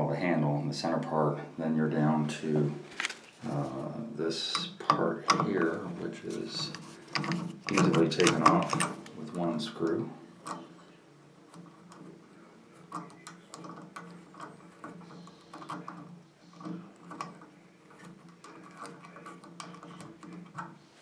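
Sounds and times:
metal on plastic ticks: 6.5s - 10.7s, 12.9s - 20.8s.

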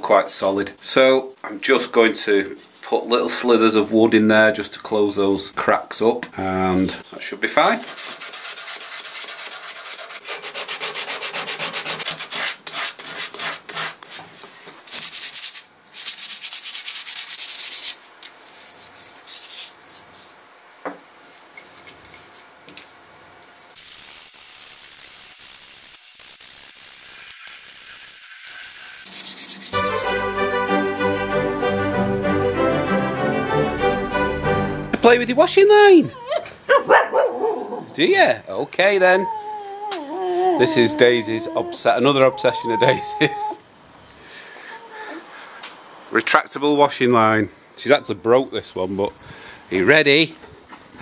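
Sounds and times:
sandpaper scratching on wood: 7.8s - 14.2s, 14.9s - 20.4s, 28.0s - 30.3s
music: 29.7s - 35.2s.

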